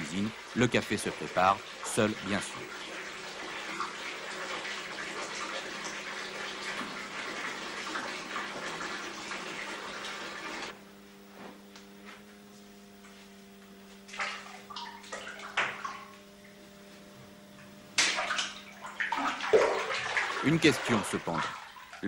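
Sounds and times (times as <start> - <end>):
water running into bathtub: 0.0 - 10.7, 14.1 - 16.6, 17.9 - 22.0.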